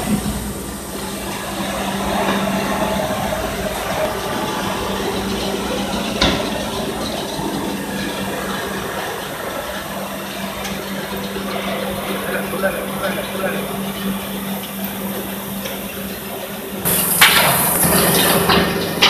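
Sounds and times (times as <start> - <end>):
shredder machine running: 0.0 - 19.0.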